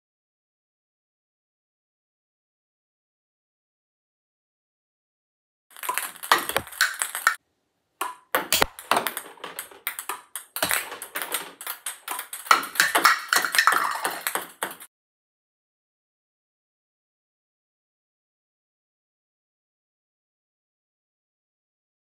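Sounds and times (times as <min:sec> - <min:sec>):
ping pong ball clicking: 0:05.8 - 0:07.4, 0:08.0 - 0:14.9.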